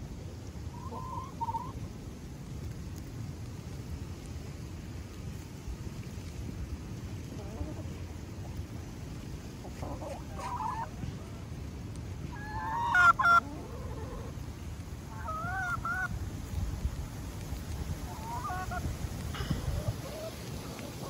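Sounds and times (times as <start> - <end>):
hens calling: 0.7 - 1.7, 9.5 - 11.5, 12.3 - 14.4, 15.1 - 16.1, 18.0 - 21.0.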